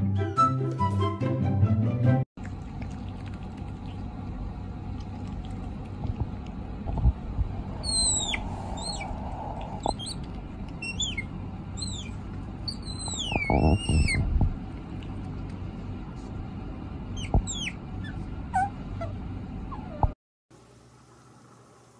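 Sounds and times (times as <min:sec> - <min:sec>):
otter squeaking: 0:07.6 - 0:14.4, 0:17.1 - 0:20.1.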